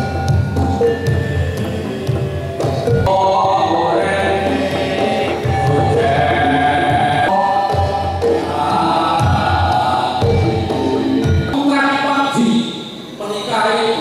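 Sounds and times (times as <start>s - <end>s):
hand drums: 0.0s - 11.6s
men singing together: 3.0s - 11.6s.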